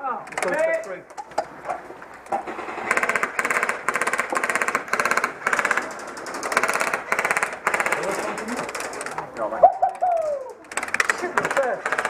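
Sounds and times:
airsoft guns firing bursts: 0:00.3 - 0:00.9, 0:02.3 - 0:09.1, 0:10.7 - 0:12.0.

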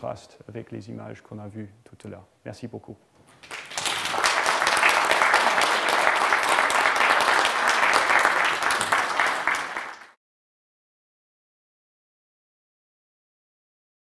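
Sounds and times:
audience applauding: 0:03.3 - 0:10.2.

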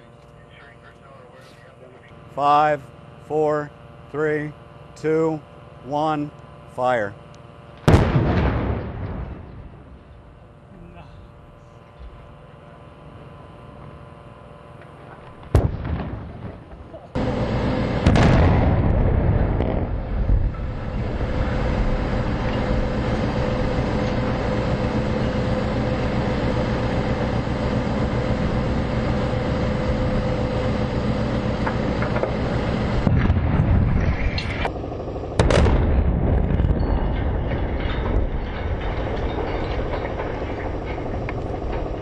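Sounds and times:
explosive blasts: 0:07.8 - 0:10.0, 0:15.4 - 0:24.4, 0:31.8 - 0:34.6, 0:35.4 - 0:42.0.

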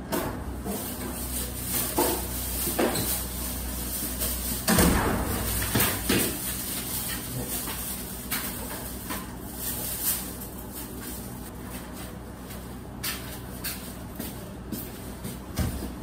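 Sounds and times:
plastic garbage bag rustling: 0:00.6 - 0:11.5
footsteps on hard floor: 0:12.5 - 0:16.0.

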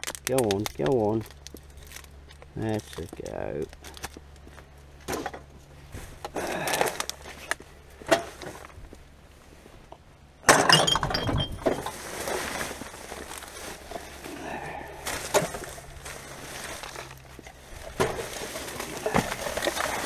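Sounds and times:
rubbish clattering in a dumpster: 0:08.0 - 0:08.8, 0:10.4 - 0:20.0.

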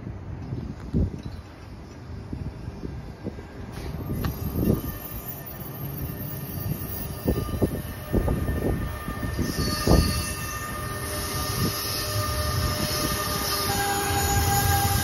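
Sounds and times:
electric locomotive whine and hiss: 0:00.0 - 0:15.0.

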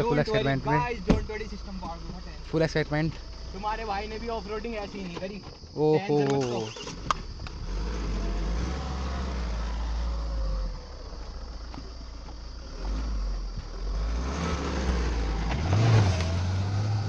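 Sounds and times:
engine revving: 0:06.4 - 0:17.0.

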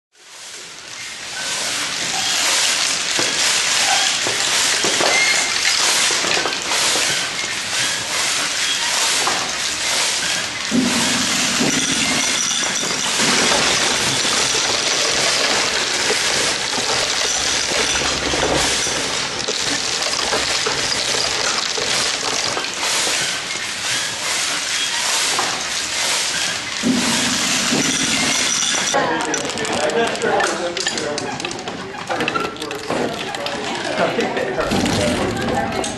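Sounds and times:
steel balls rolling and clattering: 0:00.3 - 0:35.9.

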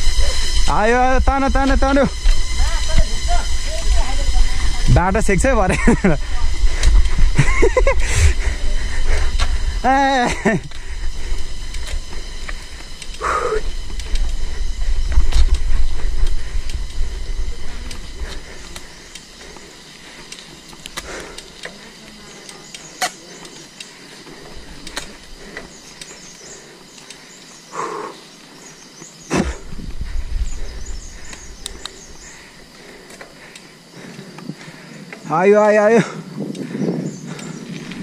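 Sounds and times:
wind buffeting microphone: 0:00.0 - 0:19.9, 0:29.3 - 0:33.0, 0:33.8 - 0:38.0
faint steady high tones: 0:00.0 - 0:36.0.

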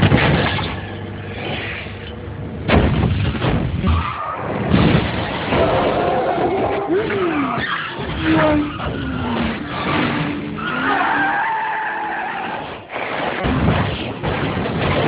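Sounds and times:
tyres squealing in a skid: 0:05.4 - 0:13.4.

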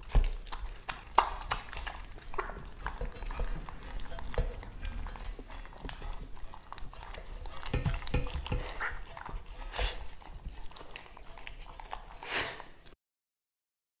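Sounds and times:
dogs lapping from metal bowls: 0:00.0 - 0:13.0
tongue clinking on metal bowl: 0:00.8 - 0:12.2
dull knocks on bowl: 0:07.7 - 0:08.8.

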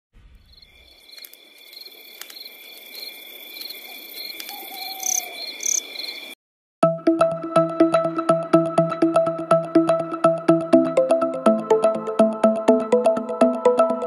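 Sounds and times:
crickets chirping: 0:00.4 - 0:06.4
falling hoot-like call: 0:03.9 - 0:05.6.

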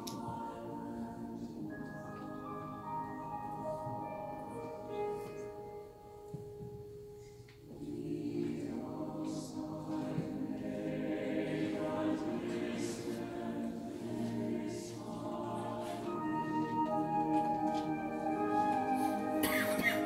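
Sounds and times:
mixed choir singing: 0:00.0 - 0:03.2, 0:07.7 - 0:20.0.

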